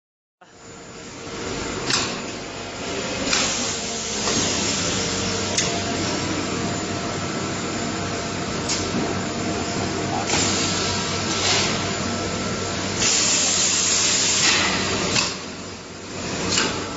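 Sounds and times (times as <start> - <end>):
welding machine hiss and hum: 0.5 - 16.9
machine sharp hisses and clicks: 3.2 - 5.8, 10.2 - 11.9, 12.8 - 15.6.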